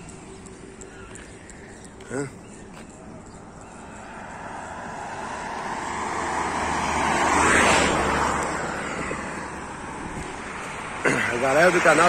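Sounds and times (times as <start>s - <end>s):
car passing by: 4.0s - 12.0s.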